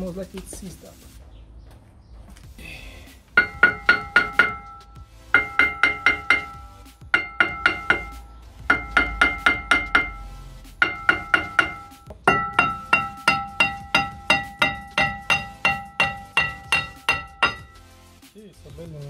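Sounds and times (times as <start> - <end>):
hammer striking metal disc: 3.4 - 17.9.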